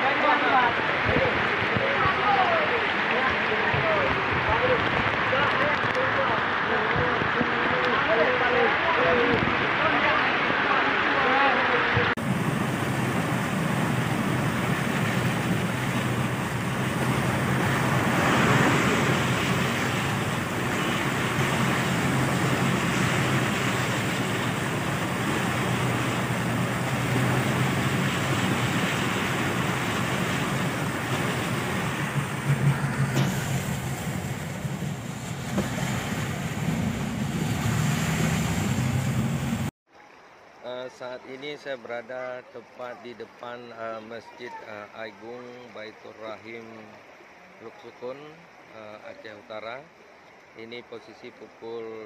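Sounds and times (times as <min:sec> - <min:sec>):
floodwater rushing: 0:00.0 - 0:41.3
rain: 0:00.0 - 0:52.0
wind on microphone: 0:12.0 - 0:39.7.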